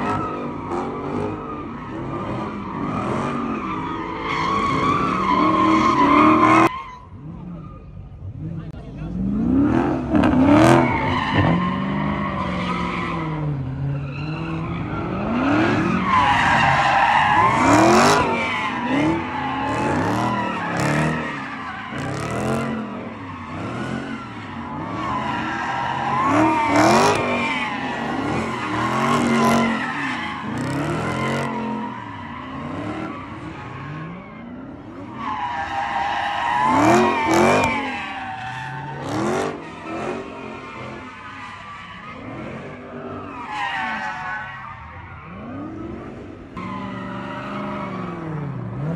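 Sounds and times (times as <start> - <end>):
car engine revving: 0.0 - 41.4
tires squealing: 0.0 - 48.9.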